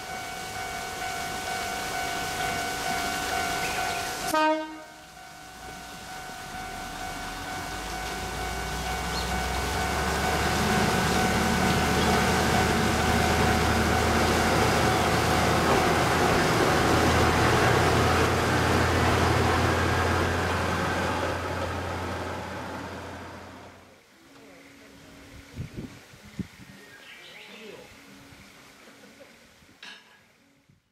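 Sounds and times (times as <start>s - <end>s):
diesel railcar engine: 0.0s - 23.9s.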